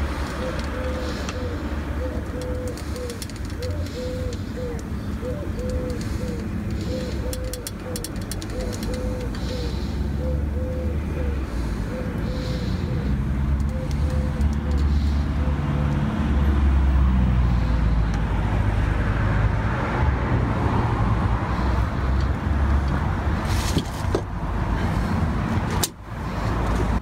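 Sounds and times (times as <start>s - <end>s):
car engine running: 0.0s - 15.6s
sharp clicks: 2.2s - 9.6s, 13.5s - 14.9s.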